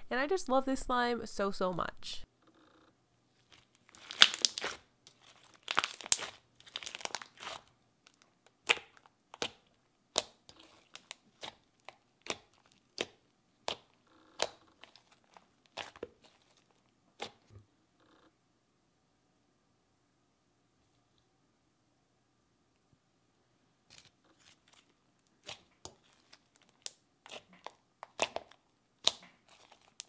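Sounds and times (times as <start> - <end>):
fingers kneading slime: 3.4 - 17.6, 23.9 - 30.0
slime clicks and pops: 4.0 - 4.8.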